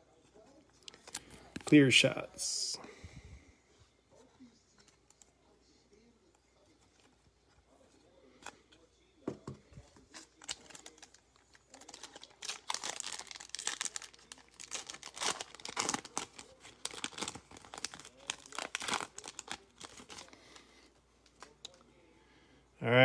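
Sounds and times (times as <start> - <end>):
foil wrapper crinkling and tearing: 10.0 - 21.9.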